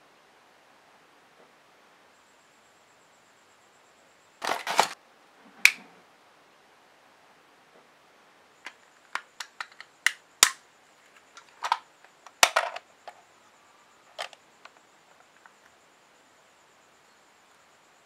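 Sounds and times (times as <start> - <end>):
plastic model parts clicking: 8.7 - 10.6, 11.4 - 12.8.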